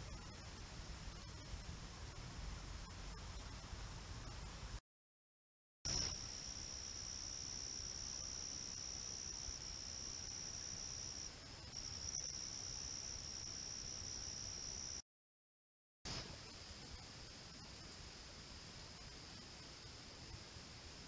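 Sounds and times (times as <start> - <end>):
night insects trilling: 5.9 - 15.0.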